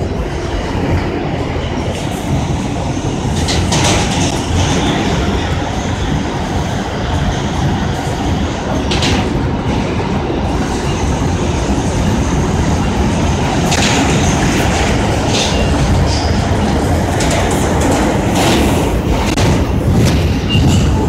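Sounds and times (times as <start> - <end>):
subway wheels rumbling on rails: 0.0 - 21.0.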